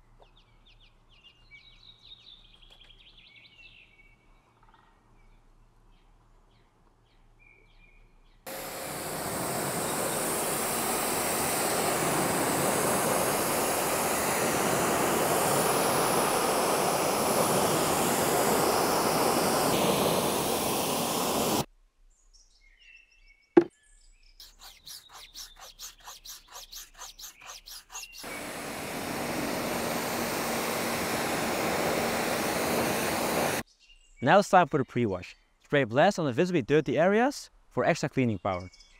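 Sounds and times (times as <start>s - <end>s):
pressure washer spraying water: 8.5s - 21.7s, 24.4s - 33.6s
rhythmic strokes: 24.4s - 33.6s.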